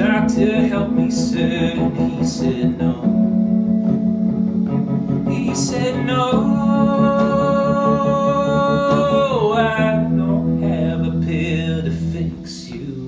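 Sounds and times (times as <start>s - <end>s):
electric piano chords: 0.0s - 12.4s
man singing held note: 5.2s - 13.0s.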